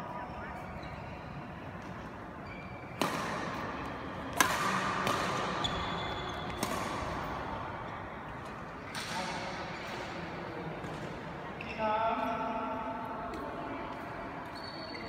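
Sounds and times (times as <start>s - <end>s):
racket striking shuttlecock: 2.9s - 7.3s.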